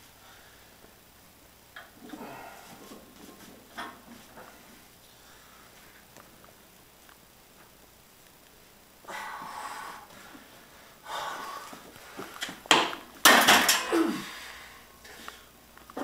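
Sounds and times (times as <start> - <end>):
heavy breathing: 2.0 - 3.1, 9.0 - 12.6, 13.9 - 15.6
man grunting: 13.9 - 14.4.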